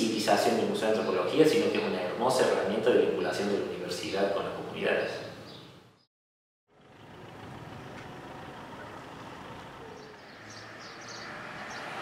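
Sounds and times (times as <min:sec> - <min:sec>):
wind: 0:00.0 - 0:06.1, 0:06.7 - 0:12.0
faint high bird calls: 0:08.6 - 0:11.8.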